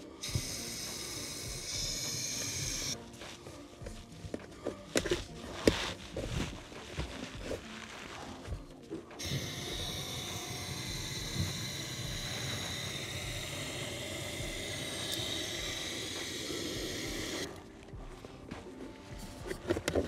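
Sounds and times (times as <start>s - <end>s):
aerosol can spraying hiss: 0.0s - 3.0s, 9.2s - 17.5s.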